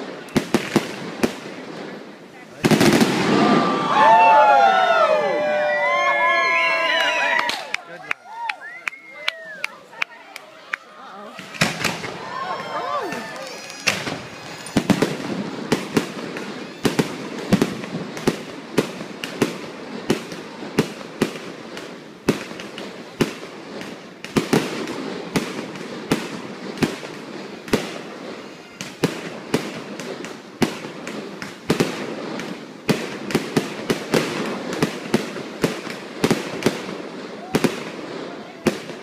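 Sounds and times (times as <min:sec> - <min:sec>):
fireworks crackling: 0:00.0 - 0:39.0
firework shells bursting: 0:13.0 - 0:37.9.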